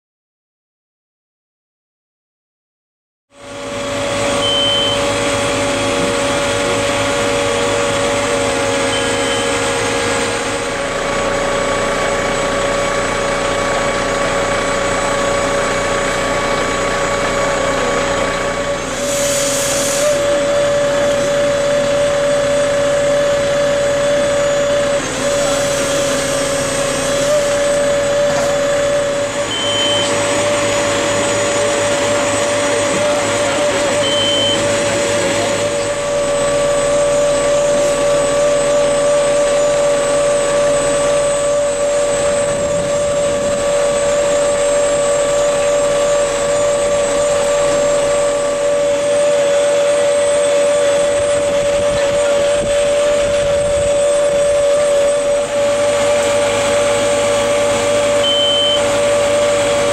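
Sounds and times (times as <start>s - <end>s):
hydraulic whine: 3.3s - 59.9s
truck engine running: 3.3s - 59.9s
short high beeps: 4.4s - 5.2s, 8.9s - 9.6s, 29.5s - 30.2s, 34.0s - 34.8s, 58.2s - 58.9s
brief hiss: 19.0s - 20.2s.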